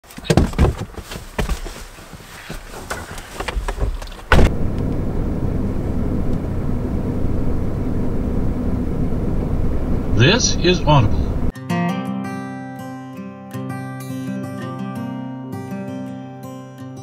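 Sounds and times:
truck engine starting and idling: 4.3 - 11.5.

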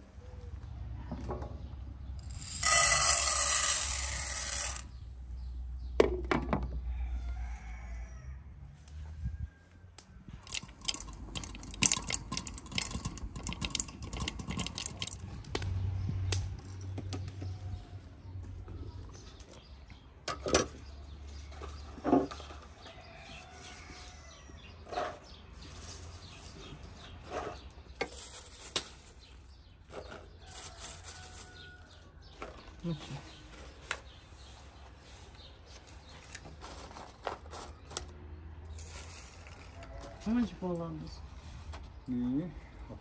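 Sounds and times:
metal spoon scraping a pan: 2.2 - 4.8
popcorn popping in a pan: 10.4 - 15.7.

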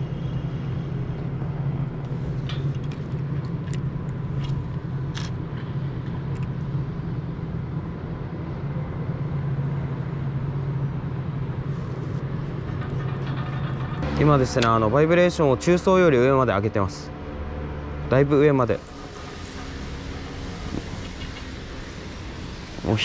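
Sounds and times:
road traffic drone: 0.0 - 23.0.

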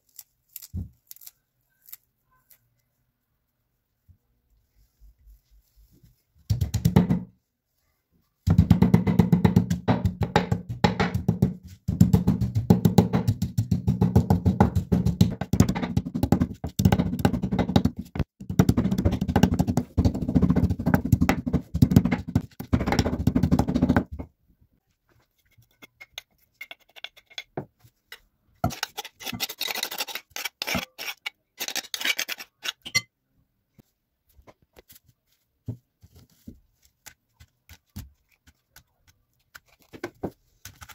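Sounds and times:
wooden pestle pounding in mortar: 8.5 - 24.2.

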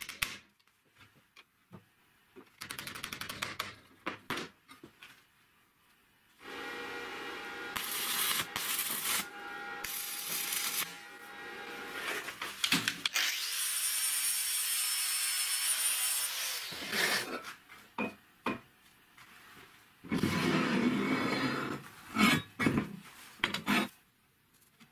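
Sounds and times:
angle grinder grinding steel: 6.4 - 12.4.

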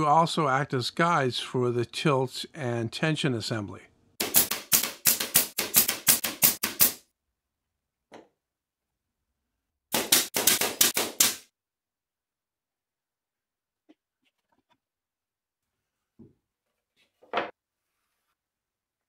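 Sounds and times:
brad nailer firing: 4.2 - 7.0, 9.9 - 11.5.

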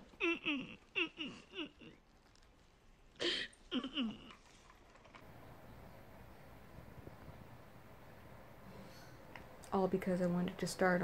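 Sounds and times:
woman sobbing: 0.1 - 2.0, 3.2 - 4.4.

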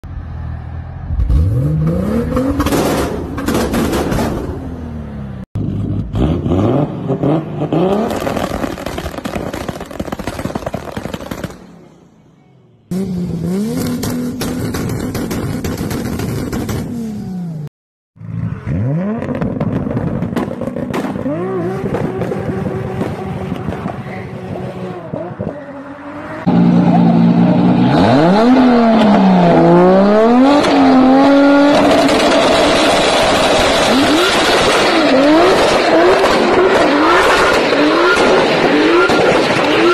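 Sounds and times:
car engine revving: 0.5 - 8.6, 18.4 - 39.9
exhaust pops and crackles: 8.0 - 11.6, 14.0 - 16.9, 19.2 - 24.1.

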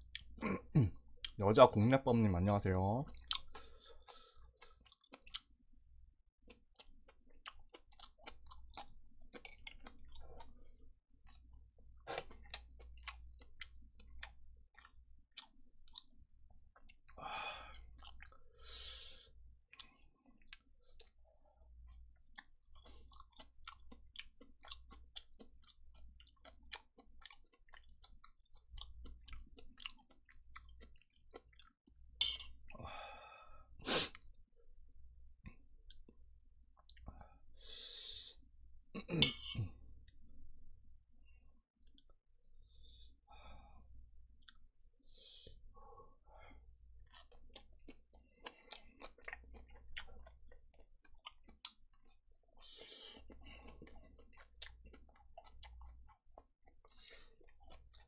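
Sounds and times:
close chewing: 6.5 - 17.2, 21.9 - 31.8, 47.0 - 58.0.

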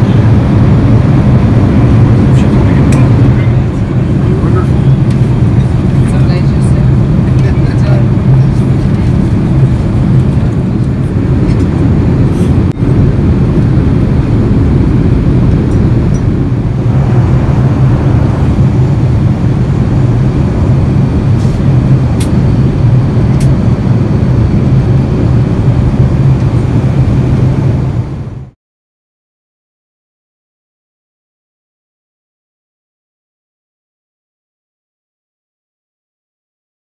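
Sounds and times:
airliner cabin drone: 0.0 - 28.6.

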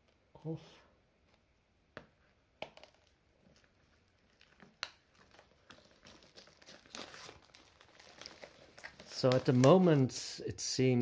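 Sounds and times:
plastic film crinkling: 2.7 - 10.2.

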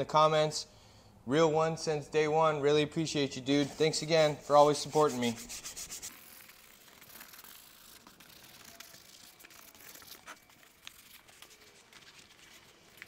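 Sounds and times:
brush scrubbing leather: 3.5 - 11.7
small clicks and crackles: 6.4 - 13.0.

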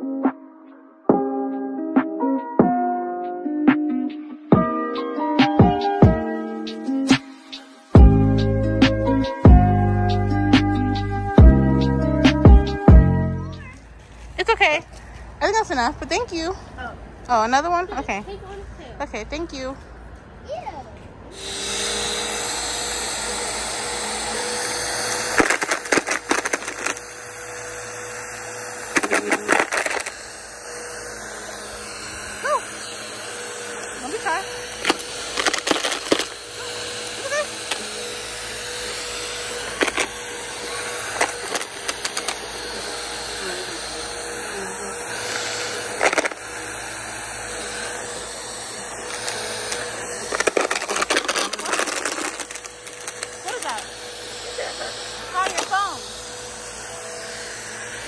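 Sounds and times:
vacuum cleaner motor whine: 5.4 - 13.5, 21.3 - 58.0.

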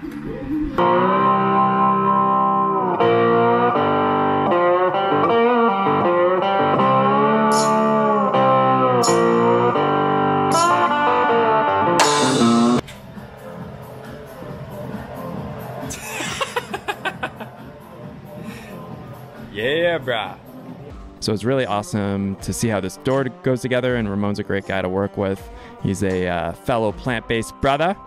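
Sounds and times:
plucked electric guitar melody: 0.8 - 12.8.

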